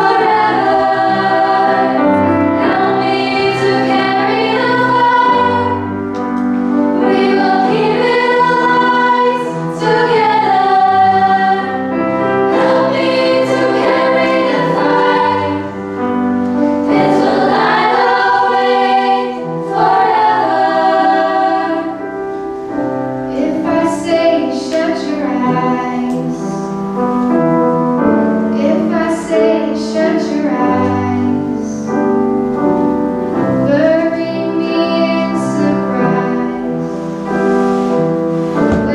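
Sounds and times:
girls' choir singing: 0:00.0 - 0:22.6, 0:23.3 - 0:26.5, 0:38.6 - 0:38.9
grand piano: 0:00.0 - 0:38.9.

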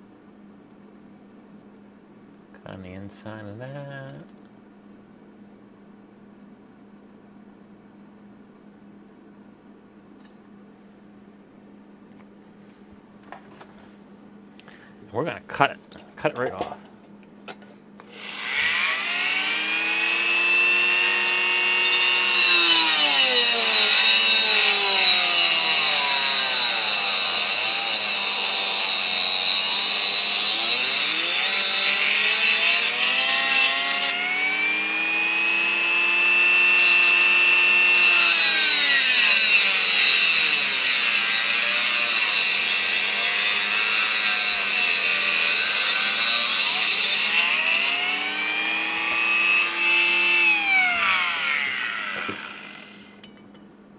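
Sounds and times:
cutting wheel hissing on metal: 0:18.2 - 0:53.2
rotary tool whining: 0:18.2 - 0:53.2.

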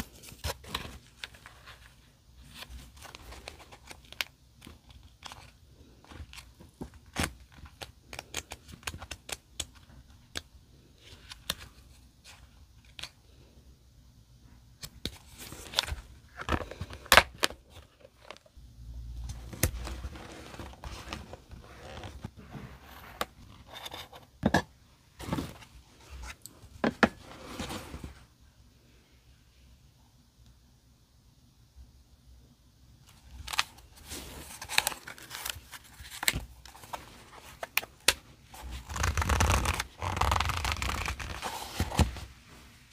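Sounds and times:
paper rustling and scraping: 0:19.5 - 0:23.8, 0:33.3 - 0:37.9, 0:38.5 - 0:42.9.

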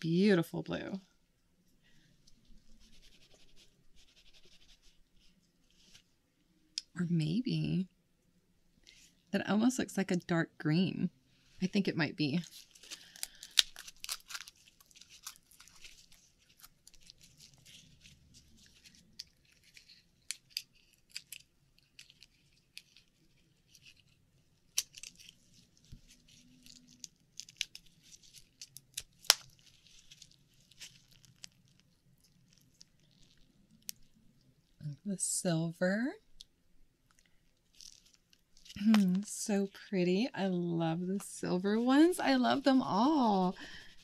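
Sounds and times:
oyster shells clicking and scraping: 0:12.5 - 0:34.2.

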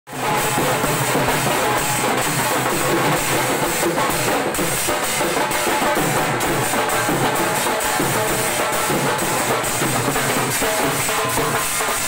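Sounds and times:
loud drum-led music: 0:00.1 - 0:12.0.

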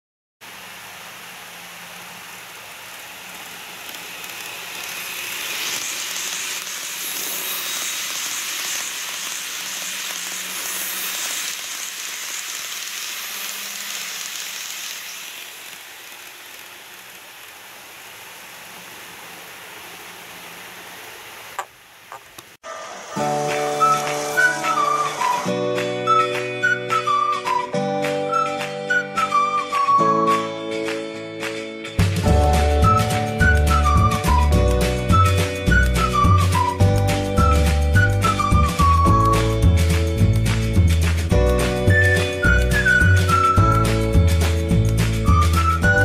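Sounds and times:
model train rolling past: 0:01.6 - 0:20.6, 0:22.7 - 0:27.6, 0:32.2 - 0:46.0.

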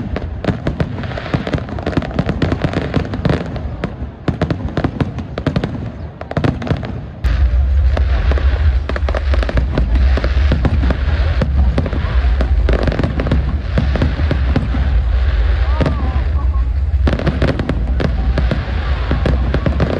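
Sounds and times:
fireworks crackling bangs: 0:00.0 - 0:19.9
deep steady rumble: 0:07.2 - 0:19.9.

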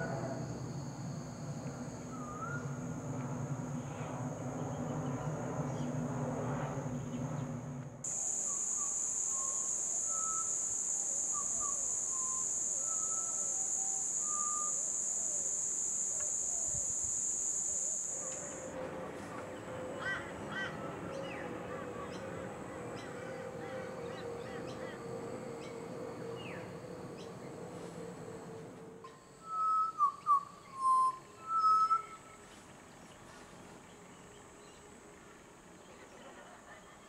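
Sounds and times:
high-pitched insect drone: 0:00.0 - 0:05.9, 0:08.0 - 0:18.8, 0:20.0 - 0:32.5
birds singing fluting whistles: 0:02.1 - 0:02.8, 0:08.3 - 0:18.6, 0:29.1 - 0:32.4.

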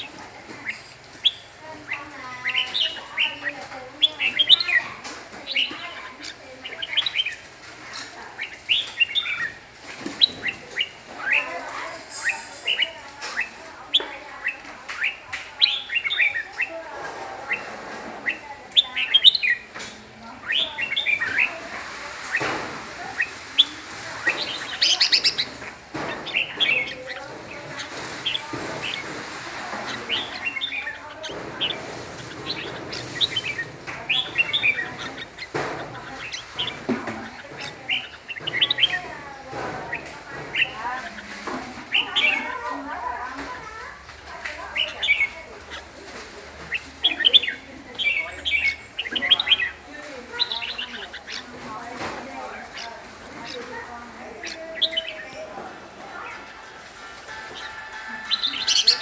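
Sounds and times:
bird singing whistled notes: 0:57.6 - 0:59.0.

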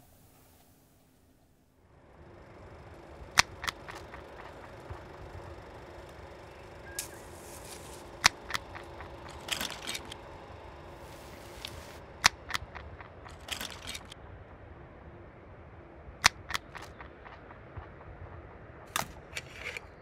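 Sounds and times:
faint steady hum: 0:00.0 - 0:20.0
sharp clicks: 0:03.2 - 0:14.2, 0:16.2 - 0:17.5.

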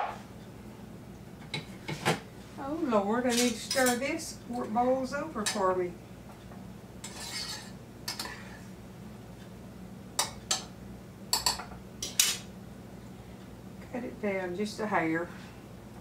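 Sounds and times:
steady low hum: 0:00.0 - 0:16.0
spoon clinking against a pot: 0:11.3 - 0:12.4.

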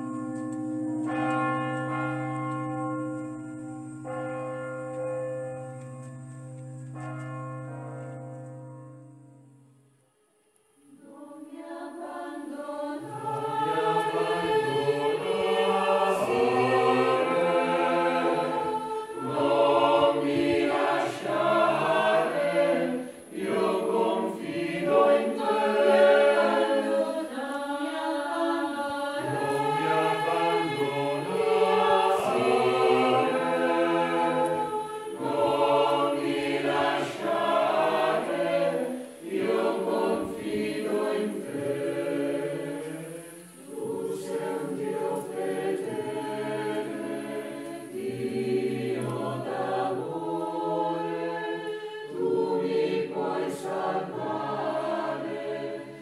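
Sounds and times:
choir singing in harmony: 0:00.0 - 0:02.0, 0:10.8 - 0:56.0.

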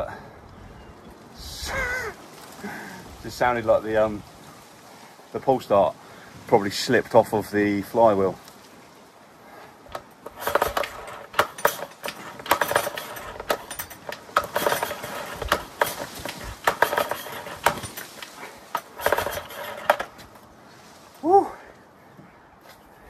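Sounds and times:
metallic clicks and clanks of pull starter: 0:09.9 - 0:20.4.

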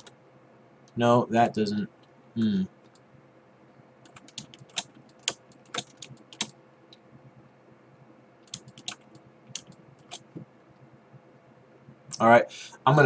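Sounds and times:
keyboard and mouse clicks: 0:04.0 - 0:07.0, 0:08.4 - 0:10.4.

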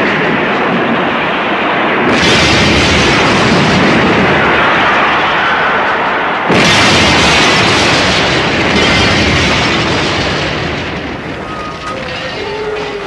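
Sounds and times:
truck crashing: 0:06.5 - 0:13.0.

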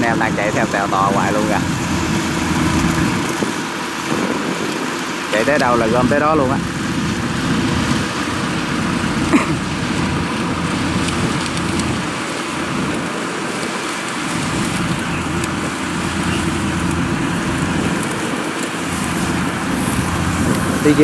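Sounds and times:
farm machinery engines droning: 0:00.0 - 0:21.0
even hiss: 0:18.6 - 0:21.0.

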